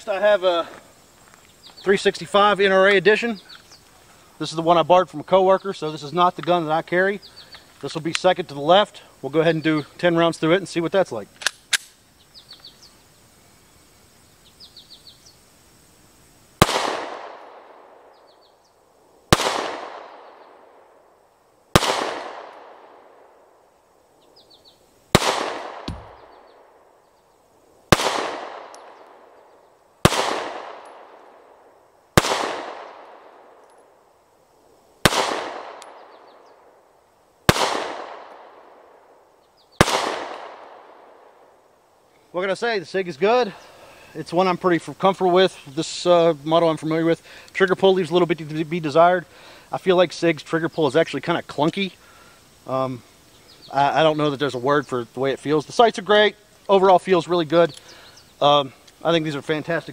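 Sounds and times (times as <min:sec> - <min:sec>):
pistol shots with echo: 0:16.6 - 0:18.2, 0:19.3 - 0:21.0, 0:21.7 - 0:23.4, 0:25.1 - 0:26.8, 0:27.9 - 0:29.4, 0:30.0 - 0:31.5, 0:32.2 - 0:33.6, 0:35.0 - 0:36.3, 0:37.5 - 0:39.0, 0:39.8 - 0:41.3.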